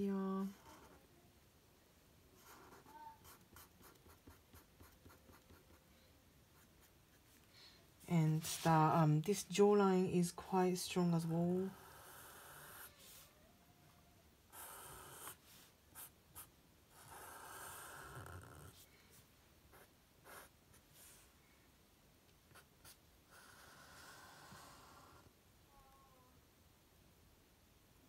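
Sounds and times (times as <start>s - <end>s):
marker scratching on paper: 2.4s - 5.8s, 19.7s - 21.2s, 22.5s - 23.4s.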